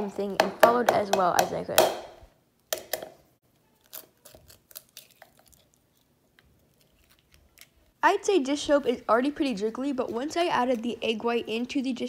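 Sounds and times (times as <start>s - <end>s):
eggshell crackling: 3.6s - 8.0s.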